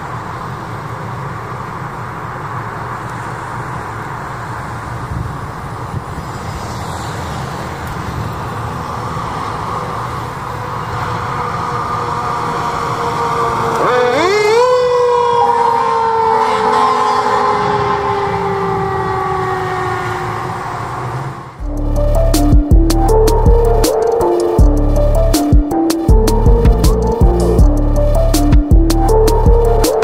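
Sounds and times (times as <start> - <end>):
fire engine driving by: 0.0 - 30.0
fire engine air horn: 10.5 - 21.7.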